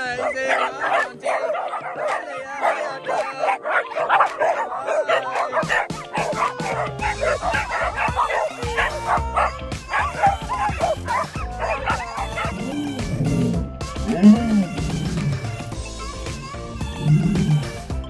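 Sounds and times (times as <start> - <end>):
small dogs barking and yipping: 0.0 - 17.9
background music with bass beat: 5.5 - 18.0.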